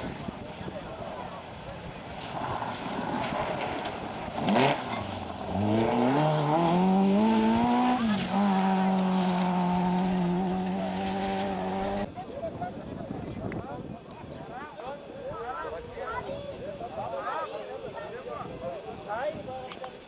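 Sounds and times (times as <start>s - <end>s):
rally car engine working hard: 0.0s - 12.1s
rally car passing by: 2.1s - 12.1s.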